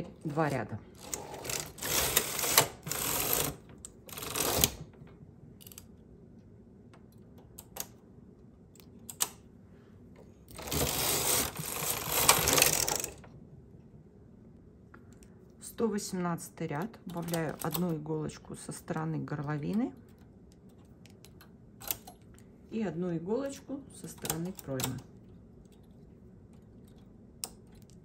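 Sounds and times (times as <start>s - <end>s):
knitting machine carriage clattering: 0.0s - 4.9s, 10.5s - 13.3s.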